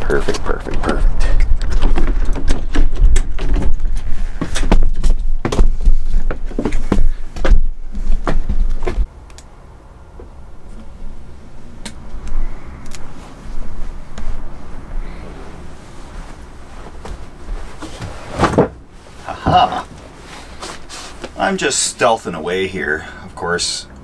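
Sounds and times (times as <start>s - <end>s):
heavy low rumble: 0.0s - 17.8s
steady cabin hum: 0.0s - 24.0s
footsteps in a bus: 0.2s - 9.1s, 13.1s - 19.3s, 19.9s - 21.4s.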